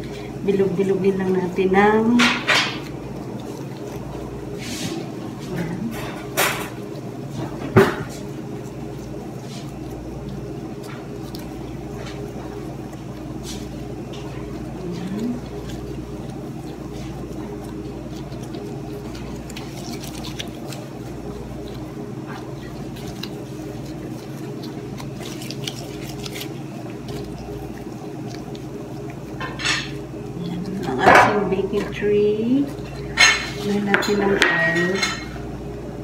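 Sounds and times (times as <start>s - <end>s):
dough squishing: 0.0s - 36.0s
steady low hum: 0.0s - 36.0s
paper rustling: 13.4s - 30.0s.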